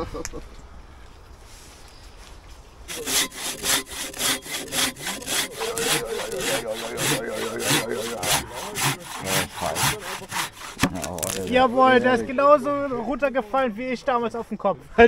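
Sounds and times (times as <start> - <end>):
hand saw cutting log: 2.9 - 14.6.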